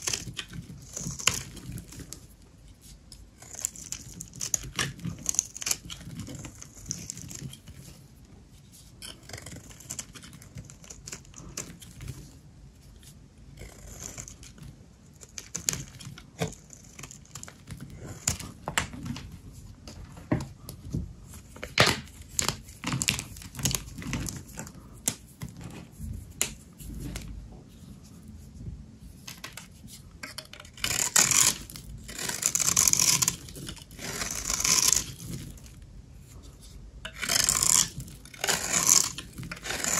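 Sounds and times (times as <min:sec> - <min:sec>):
soap crackling as it is cut: 0:00.0 - 0:08.0, 0:09.0 - 0:12.3, 0:13.5 - 0:19.2, 0:30.4 - 0:35.8, 0:37.1 - 0:39.9
rough scraping: 0:30.3 - 0:39.9.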